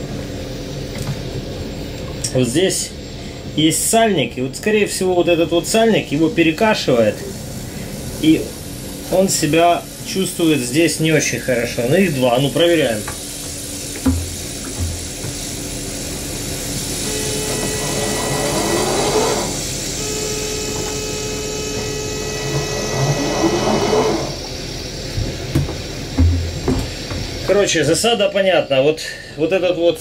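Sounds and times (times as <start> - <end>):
actuator motor whine: 13.9 - 27.6
dull knocks: 14.0 - 15.4, 25.2 - 27.3.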